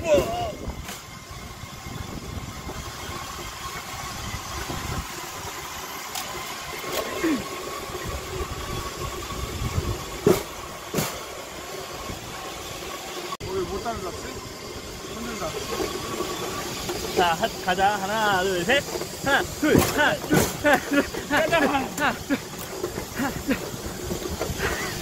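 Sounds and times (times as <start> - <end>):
steel wheels rumbling on rail: 0.0 - 25.0.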